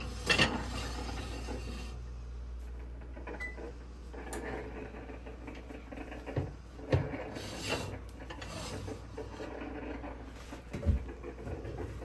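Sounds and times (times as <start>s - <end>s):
oven control panel beep: 3.4s - 3.7s.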